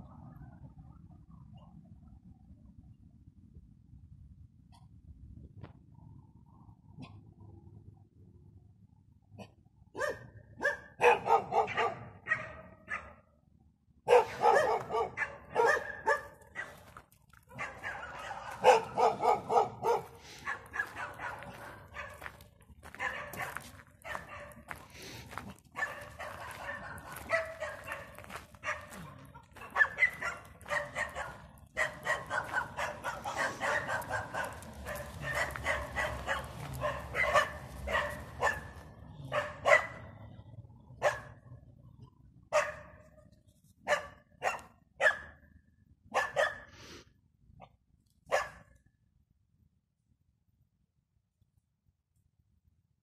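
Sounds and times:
dogs barking: 9.9 - 13.2, 14.0 - 16.9, 17.5 - 24.8, 25.7 - 40.2, 41.0 - 41.5, 42.5 - 43.1, 43.8 - 45.4, 46.1 - 46.7, 48.3 - 48.7.

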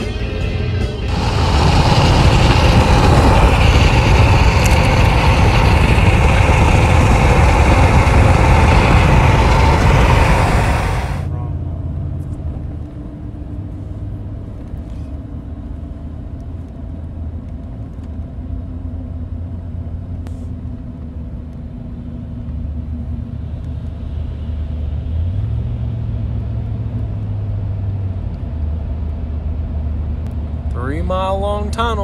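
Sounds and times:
road noise inside cabin: 0.0 - 32.0
truck engine drone: 0.0 - 32.0.

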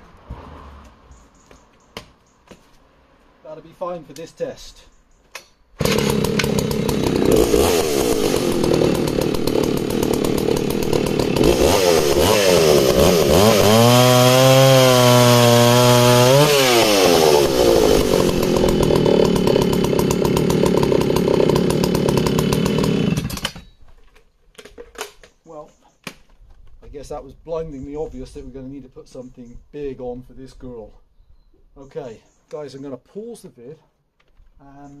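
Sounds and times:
chainsaw running at high revs: 5.8 - 23.6
chainsaw cutting log: 5.8 - 23.7.

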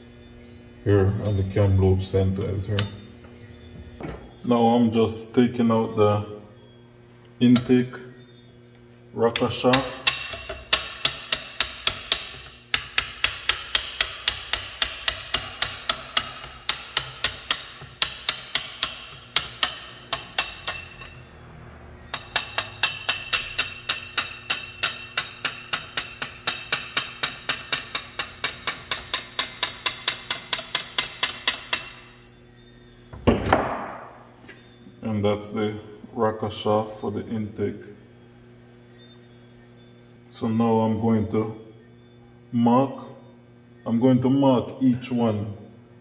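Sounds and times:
fast ringing tapping: 9.4 - 21.3, 22.1 - 32.3.

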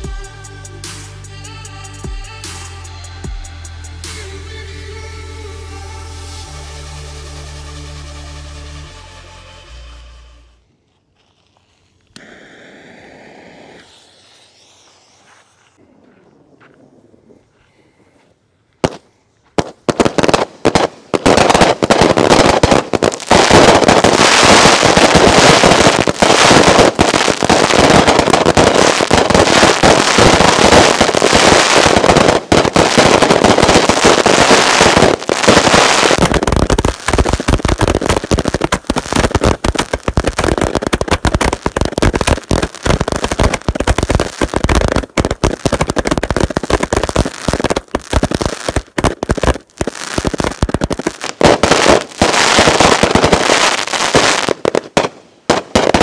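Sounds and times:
firework barrage: 12.1 - 17.5, 18.8 - 56.0
firework bangs: 12.2 - 17.3, 18.8 - 56.0.

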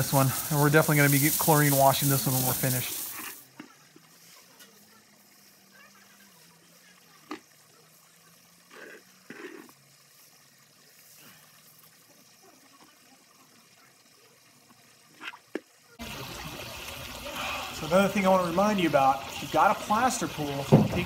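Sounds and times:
wet leaves splatting and rustling: 0.0 - 3.4.

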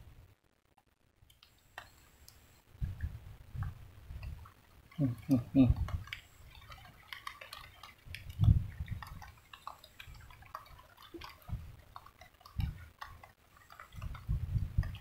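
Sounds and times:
water ticking and dripping: 0.6 - 15.0
dull low thumps: 14.0 - 15.0.

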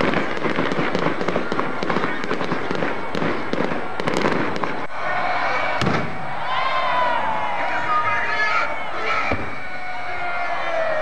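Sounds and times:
fireworks bursting and crackling: 0.0 - 4.9, 5.8 - 6.3.

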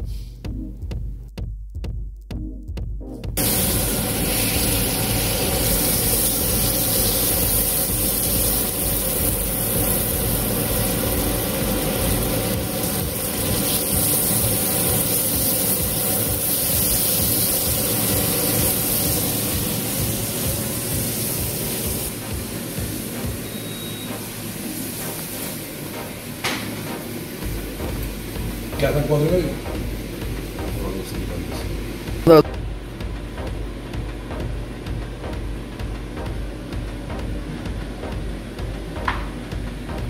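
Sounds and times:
onions sizzling in oil: 3.4 - 30.6.

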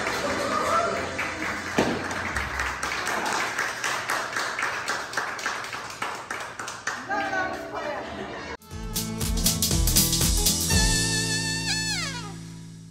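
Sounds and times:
crowd clapping: 0.0 - 8.4.

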